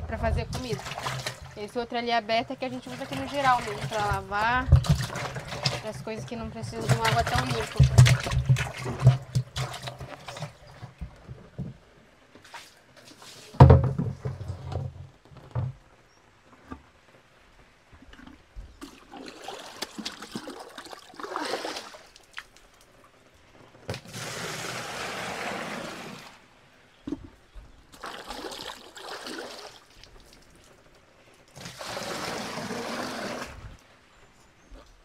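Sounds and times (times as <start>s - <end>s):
water pouring from bucket: 0.4s - 1.7s, 2.6s - 11.0s, 18.8s - 22.6s, 23.9s - 26.4s, 27.9s - 30.8s, 31.5s - 33.8s
plastic containers knocking on wood: 6.6s - 10.0s.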